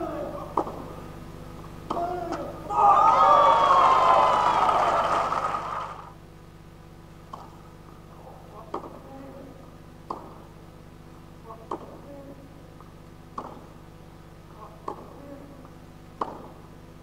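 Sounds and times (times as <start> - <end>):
tennis ball bouncing: 0.6 - 0.8, 8.7 - 9.0, 10.1 - 10.4, 11.6 - 12.0, 13.3 - 13.7, 14.8 - 15.2, 16.2 - 16.6
tennis racket hitting ball: 13.3 - 13.7, 14.8 - 15.2, 16.2 - 16.6.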